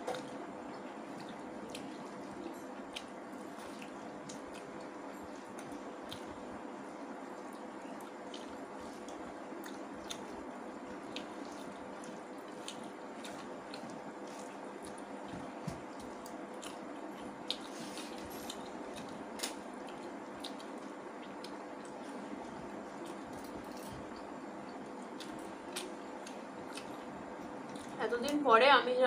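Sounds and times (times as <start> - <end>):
faint steady hum: 0.0 - 29.0
wet chewing and mouth smacking: 1.1 - 6.4, 7.3 - 28.0.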